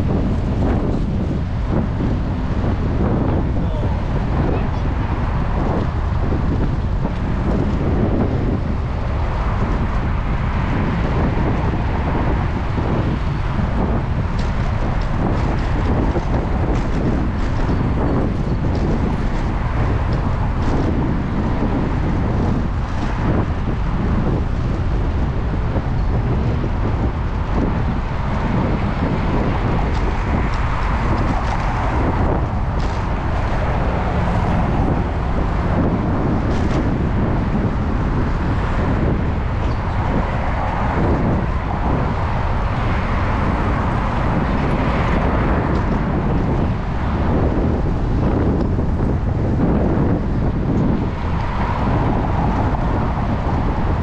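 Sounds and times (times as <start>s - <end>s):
bicycle tyre noise: 0.0s - 54.0s
wind rushing: 0.0s - 54.0s.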